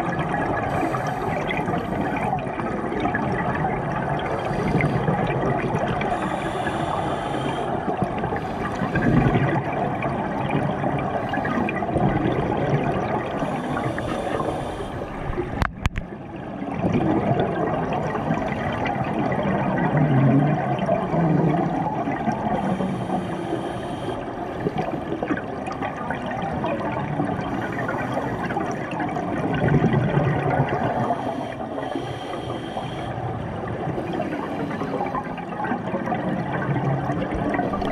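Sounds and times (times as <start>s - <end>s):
exhaled bubbles gurgling: 0.0s - 37.9s
regulator inhale hiss: 0.6s - 2.3s, 4.3s - 5.1s, 6.0s - 9.1s, 13.4s - 15.4s, 22.5s - 24.4s, 27.5s - 28.8s, 31.0s - 33.3s.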